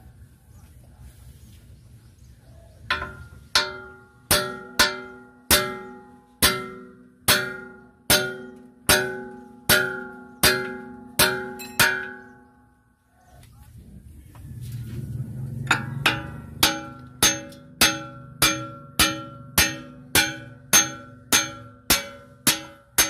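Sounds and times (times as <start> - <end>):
hammer striking steel bar: 2.9 - 12.4, 15.7 - 23.0.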